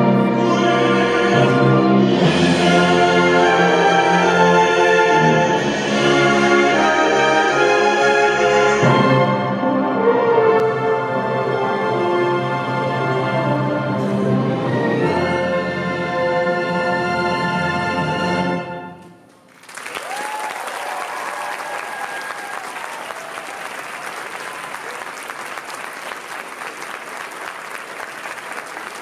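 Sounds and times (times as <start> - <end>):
symphony orchestra holding chord: 0.0 - 18.9
audience applause: 19.4 - 29.0.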